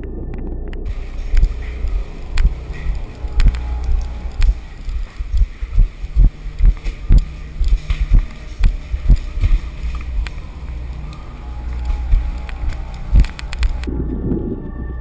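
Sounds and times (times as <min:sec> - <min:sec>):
low steady rumble: 0:00.0 - 0:15.0
footsteps in metal tunnel: 0:00.8 - 0:13.9.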